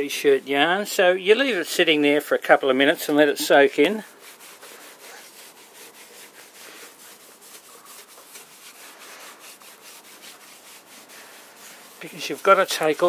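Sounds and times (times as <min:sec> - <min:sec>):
rag swishing on wood: 0:03.1 - 0:13.0.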